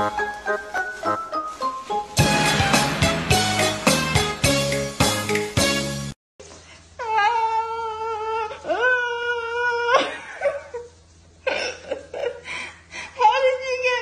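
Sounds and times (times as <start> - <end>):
background music: 0.0 - 6.2
burst of noise: 2.2 - 5.6.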